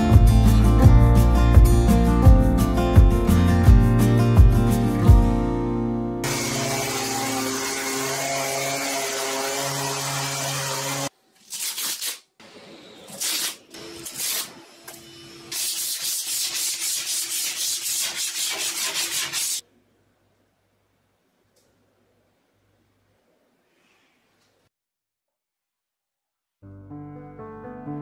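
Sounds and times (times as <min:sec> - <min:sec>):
sanding strokes: 0:15.5 - 0:19.6.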